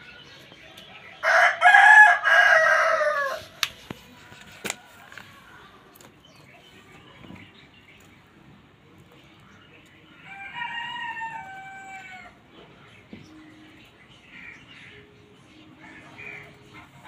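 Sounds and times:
rooster crowing: 1.2 - 3.4, 10.3 - 12.3.

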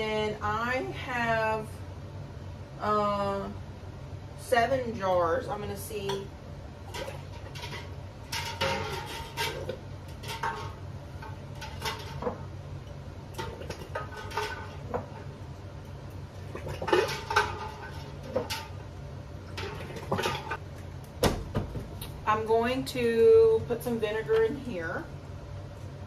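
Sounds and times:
steady low hum: 0.0 - 26.0
water sloshing: 13.3 - 15.5, 16.3 - 20.6.

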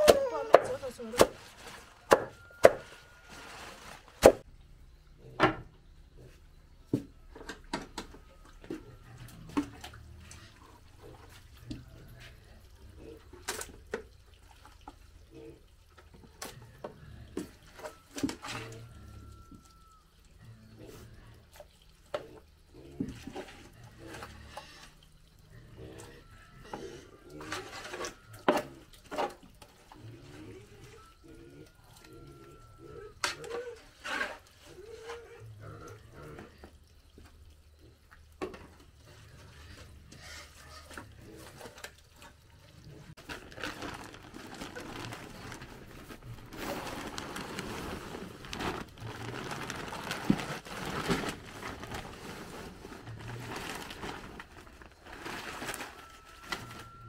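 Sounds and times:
hands mixing wet mash: 0.0 - 4.5, 6.3 - 57.0
cleaver chopping stems: 2.1 - 2.9.

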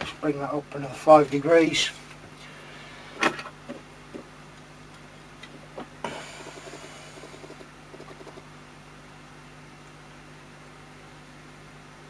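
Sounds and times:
steady low hum: 0.0 - 12.0
faint hiss with small ticks: 9.2 - 10.0.

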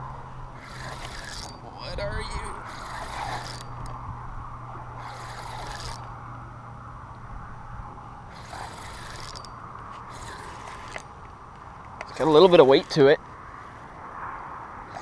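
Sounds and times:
hand rubbing against rod: 0.6 - 1.6, 2.6 - 4.0, 5.0 - 6.1, 8.3 - 11.1
fishing reel being cranked: 0.6 - 4.0, 5.0 - 6.1, 8.3 - 11.1, 12.1 - 13.1.

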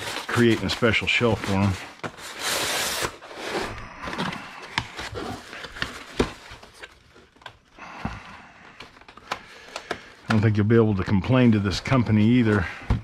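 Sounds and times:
cardboard rustling and tapping: 4.1 - 8.2.

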